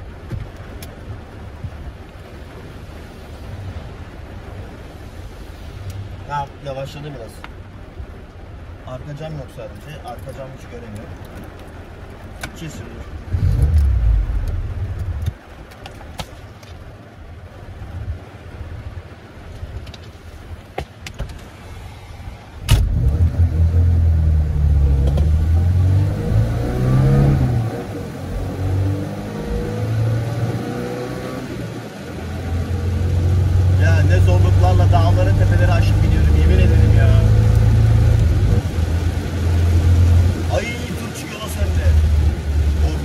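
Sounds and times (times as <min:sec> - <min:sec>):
car engine revving: 0:13.2 - 0:15.3, 0:22.6 - 0:40.8.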